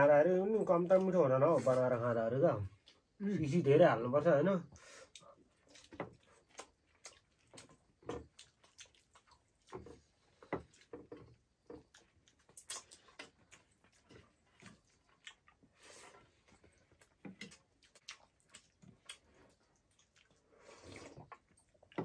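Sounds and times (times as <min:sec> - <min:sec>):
chewing mouth sounds: 0:05.1 - 0:11.0, 0:11.8 - 0:22.0.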